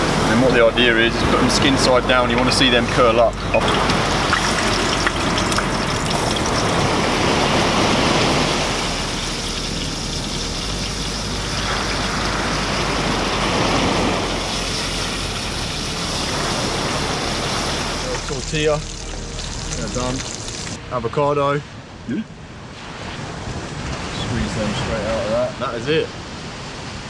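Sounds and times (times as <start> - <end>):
fish sizzling in hot oil: 3.6 - 20.8.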